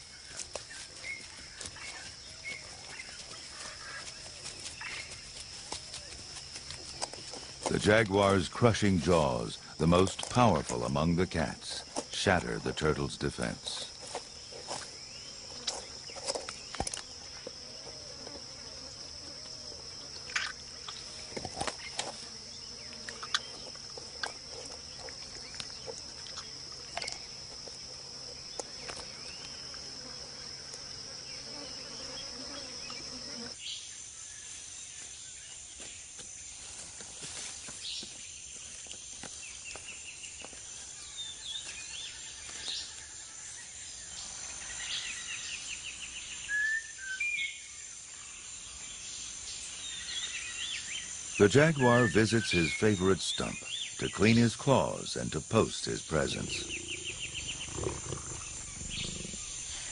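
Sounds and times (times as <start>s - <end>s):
insect drone: 0.0s - 59.9s
bird chirps: 55.8s - 59.9s.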